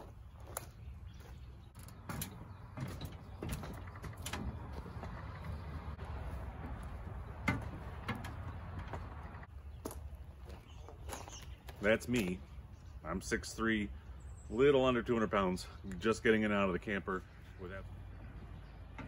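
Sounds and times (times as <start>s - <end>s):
footsteps on metal steps: 0.0s - 12.4s
metal steps knocking and rattling: 1.7s - 9.5s.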